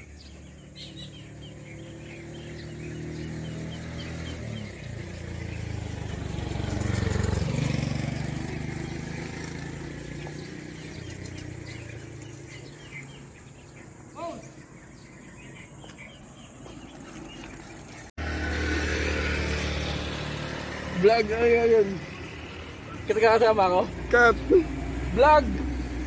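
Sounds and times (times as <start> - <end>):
vehicle passing by: 0.0 - 14.0, 14.7 - 26.0
small bird chirps: 8.4 - 18.1.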